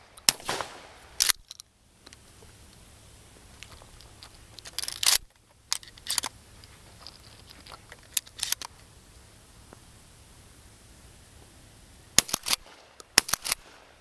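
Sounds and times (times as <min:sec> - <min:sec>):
shotgun handling clicks and rattles: 0:01.2 - 0:02.2, 0:03.6 - 0:08.8, 0:12.2 - 0:13.8.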